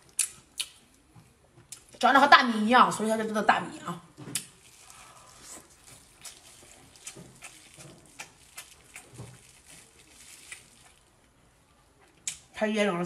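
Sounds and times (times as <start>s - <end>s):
chewing and wet mouth smacks: 0.0s - 1.0s, 4.3s - 11.1s, 12.0s - 12.5s
soft squelches of tearing food: 4.3s - 12.5s.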